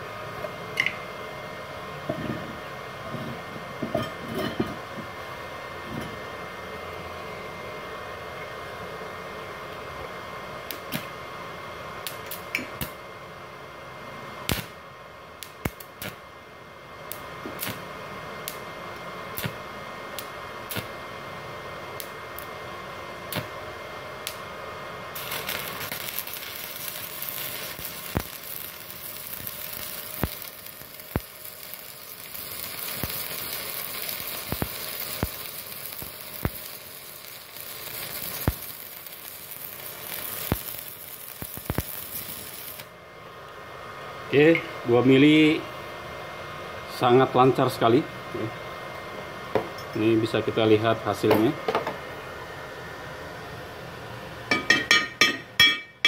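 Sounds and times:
welding arc crackling hiss: 0.0s - 2.7s, 8.8s - 43.6s
cooling fan running: 0.0s - 56.0s
welder humming: 0.0s - 56.0s.

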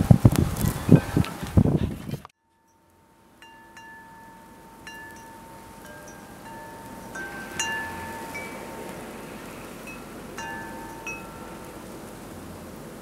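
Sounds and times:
metal wind chime ringing: 2.4s - 11.8s
faint hiss: 2.6s - 13.0s.

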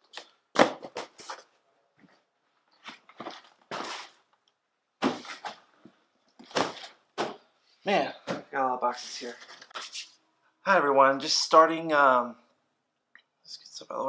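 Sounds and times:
cardboard boxes thumping: 0.5s - 1.3s, 5.0s - 5.6s, 6.4s - 7.4s.

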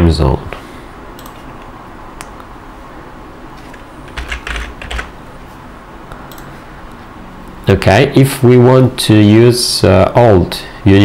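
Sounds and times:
keyboard typing: 3.6s - 5.2s, 6.3s - 6.5s.

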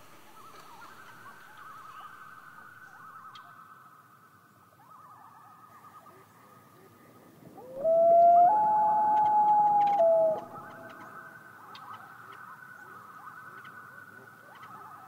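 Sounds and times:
loons calling: 7.5s - 13.8s
loon wail: 7.6s - 11.1s.

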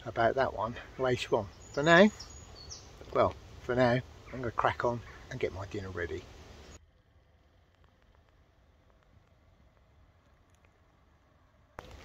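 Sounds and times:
faint low rumble: 6.2s - 12.0s.

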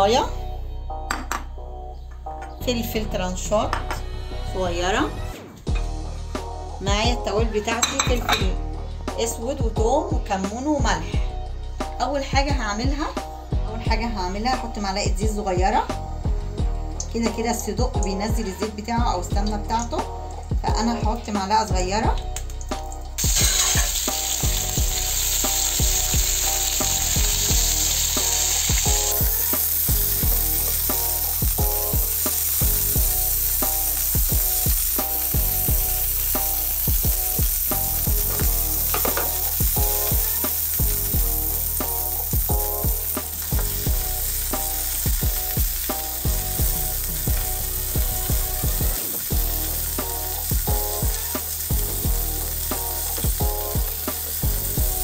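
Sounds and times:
sausages sizzling in oil: 14.6s - 55.0s.

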